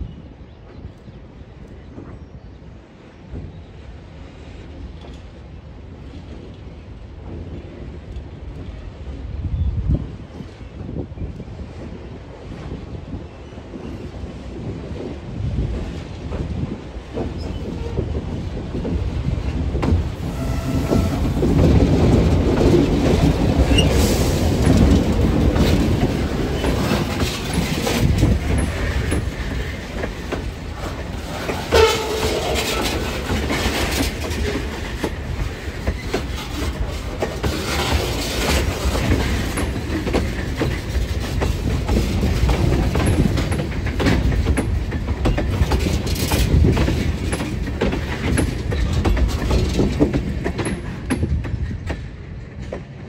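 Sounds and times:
train rumbling: 0:00.0 - 0:53.0
wheels clicking over rail joints: 0:14.6 - 0:53.0.

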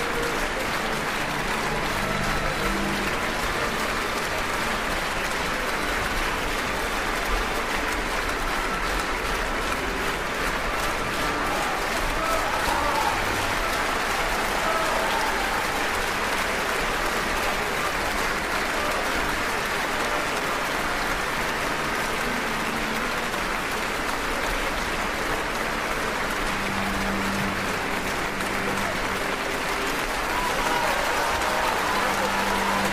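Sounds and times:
audience applauding: 0:00.0 - 0:32.9.

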